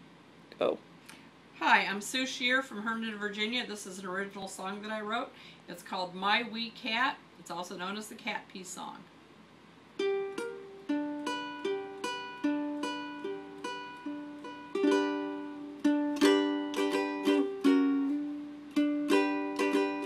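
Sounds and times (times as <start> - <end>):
plucked string instrument strumming: 10.0 - 20.0.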